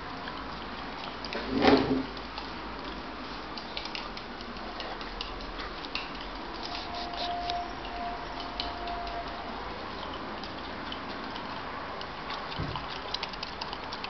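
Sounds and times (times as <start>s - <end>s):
chopstick scraping ceramic mug: 6.6s - 7.9s.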